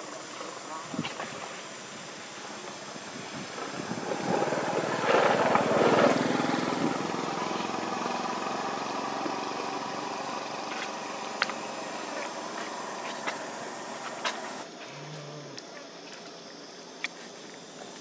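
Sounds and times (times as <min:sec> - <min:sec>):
vehicle engine passing: 0:03.5 - 0:14.6.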